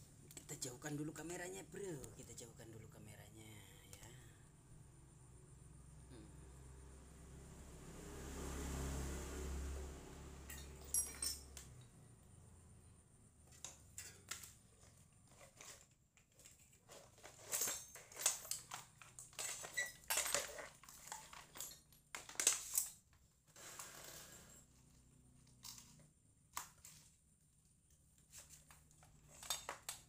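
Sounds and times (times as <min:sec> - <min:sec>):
hard objects clicking and clattering: 0:13.5 - 0:23.2.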